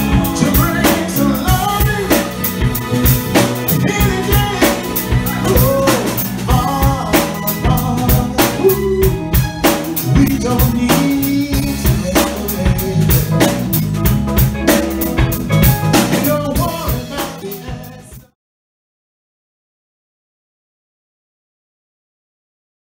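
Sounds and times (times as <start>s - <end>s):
electric guitar: 0.0s - 18.2s
drum beat: 0.0s - 18.3s
bass guitar: 0.0s - 18.4s
keyboard: 0.0s - 18.4s.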